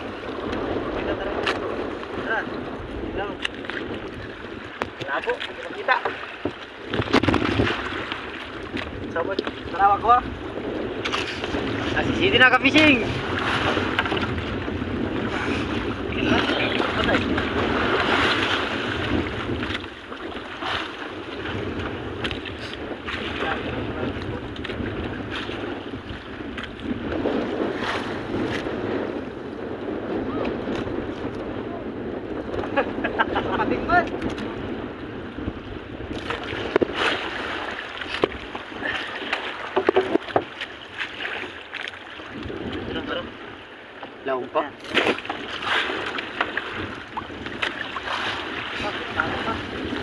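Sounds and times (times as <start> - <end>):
water sloshing against boat hull: 0.0 - 28.7, 35.8 - 50.0
wind buffeting microphone: 0.0 - 50.0
sharp knocks and clicks: 39.8 - 40.6.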